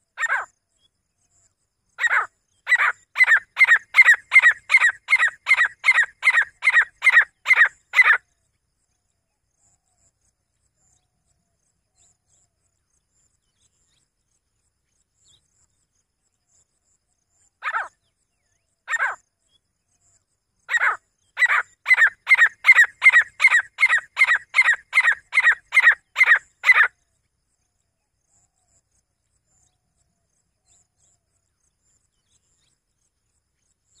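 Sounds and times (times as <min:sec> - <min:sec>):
bird calling in sharp notes: 0:02.0 - 0:08.2, 0:20.7 - 0:26.9.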